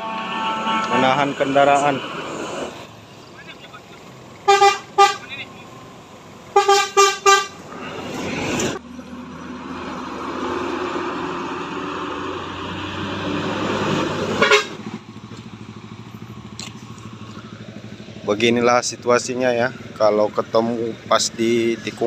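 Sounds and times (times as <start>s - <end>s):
bus horn blast: 0.0s - 1.9s, 4.4s - 5.3s, 6.5s - 7.7s, 14.2s - 14.9s
buses driving past: 0.0s - 22.0s
road background noise: 0.0s - 22.0s.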